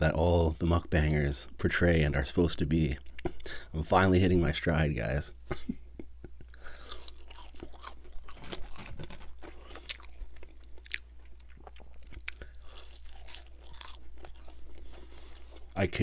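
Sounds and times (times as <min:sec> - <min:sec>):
man chewing crunchy fries: 0:06.4 - 0:15.9.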